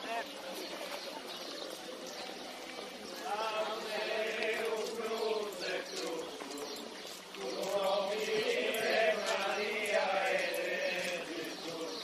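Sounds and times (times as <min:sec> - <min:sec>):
group chanting a hymn: 0:03.1 - 0:12.0.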